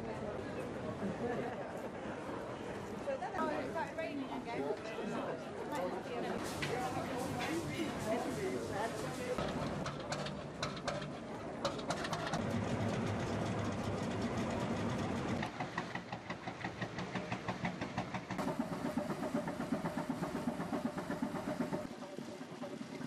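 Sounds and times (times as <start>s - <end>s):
heavy engine beating slowly: 6.4s - 23.0s.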